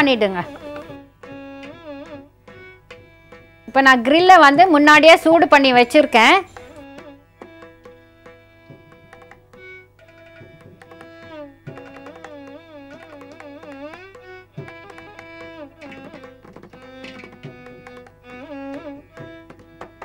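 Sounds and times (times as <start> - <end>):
hand drum strokes: 0.0 - 3.9, 6.1 - 20.0
sliding wavering melody: 5.3 - 19.7.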